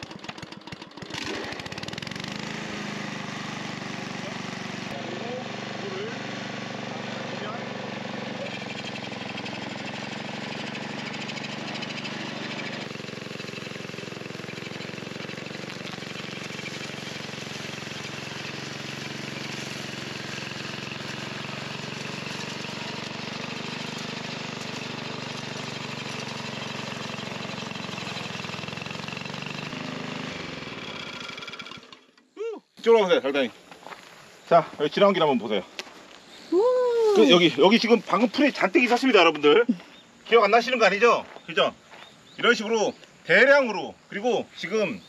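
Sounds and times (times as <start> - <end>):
cutter chopping through grass: 0.0 - 32.1
weed cutter engine running: 0.0 - 33.7, 34.5 - 41.6.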